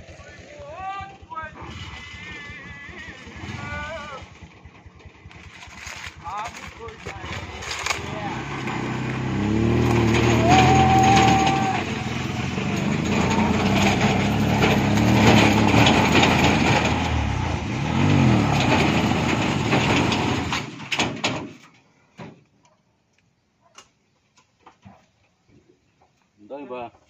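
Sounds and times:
truck petrol engine revving: 1.4 - 21.2.

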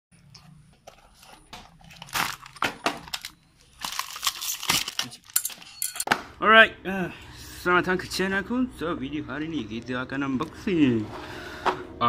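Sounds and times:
cardboard and plastic tearing rustling: 0.3 - 5.7.

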